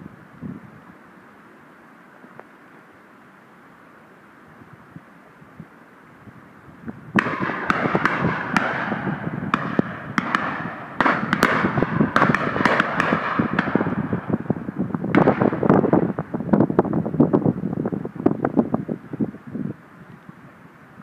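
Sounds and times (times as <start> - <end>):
continuous rush of noise: 0.0 - 21.0
shotguns firing: 7.2 - 14.2, 15.1 - 16.0.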